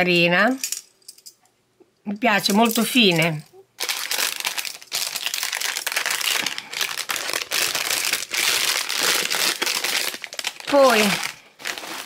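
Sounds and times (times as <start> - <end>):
plastic bag crinkling: 2.6 - 12.0.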